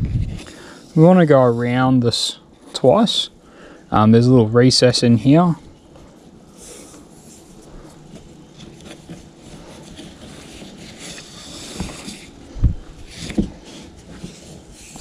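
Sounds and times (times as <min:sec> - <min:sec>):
cord rustling and scraping: 0:06.0 - 0:15.0.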